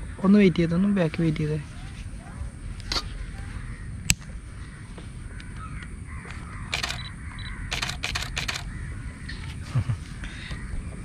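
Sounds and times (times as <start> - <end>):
camera shutter clicks: 6.7 - 8.7.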